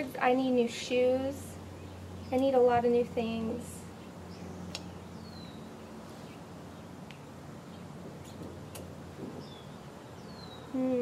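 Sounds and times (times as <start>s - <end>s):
low steady hum: 0.0s - 11.0s
faint sharp clicks: 4.7s - 4.9s.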